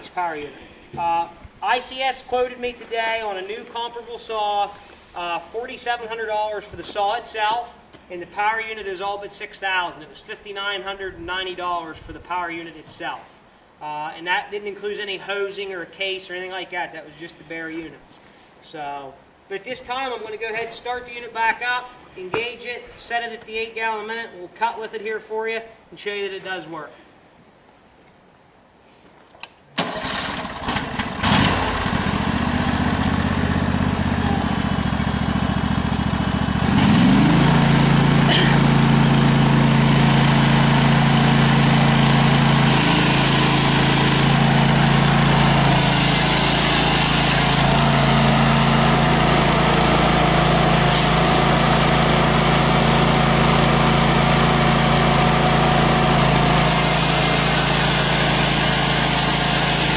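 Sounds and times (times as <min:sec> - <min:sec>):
gas engine starting and running: 0:29.8 - 0:59.9
chainsaw cutting concrete: 0:30.2 - 0:59.9
chainsaw chain running: 0:34.7 - 0:59.9.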